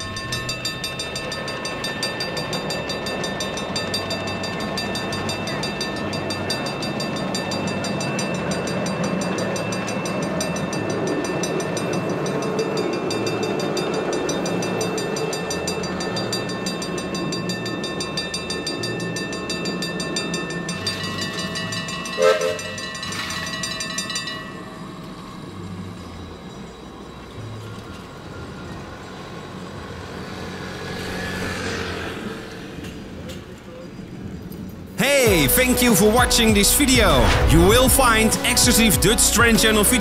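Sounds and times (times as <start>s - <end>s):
level-crossing bells ringing: 0.0s - 29.8s, 35.0s - 40.0s
miniature train rumbling past: 0.0s - 40.0s
train whistle toots: 22.2s - 22.8s.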